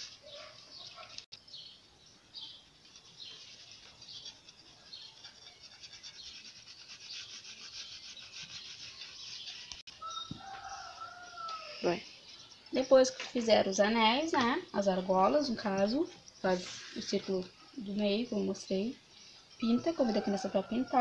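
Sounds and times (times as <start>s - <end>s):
crayon scribbling on cardboard: 3.0s - 9.9s.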